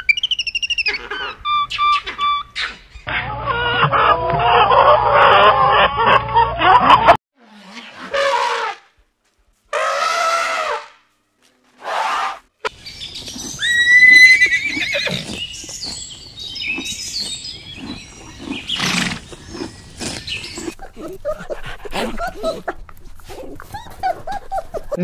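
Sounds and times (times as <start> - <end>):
horse whinnying: 13.3 - 15.4, 17.8 - 20.8
horse snorting: 14.5 - 23.8.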